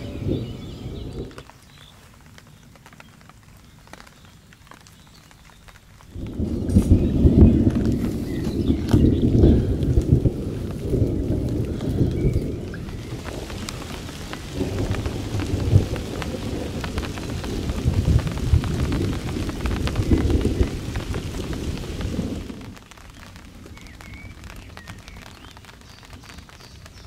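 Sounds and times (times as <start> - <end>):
low rumble of thunder: 0.0 - 1.5, 6.1 - 25.4
rain falling on a lake: 0.0 - 27.0.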